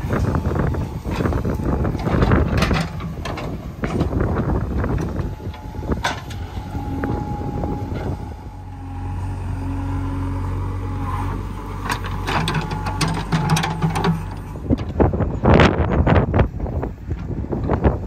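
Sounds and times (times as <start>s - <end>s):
diesel engine under load: 0.0s - 18.0s
bucket clanking and scraping soil: 11.8s - 15.0s.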